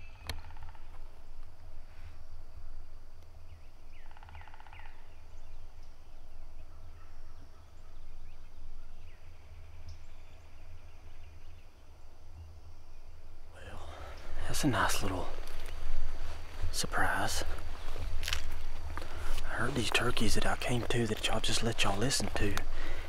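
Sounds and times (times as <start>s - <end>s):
wild turkey gobbling: 3.9s - 5.2s.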